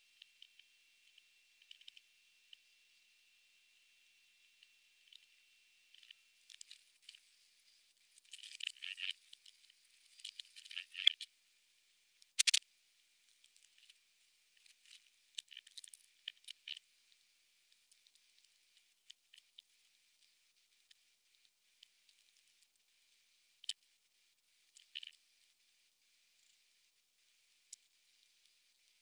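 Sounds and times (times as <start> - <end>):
insect chewing crunchy exoskeleton: 8.2 - 9.5, 10.1 - 11.2, 12.4 - 12.6, 14.8 - 16.8.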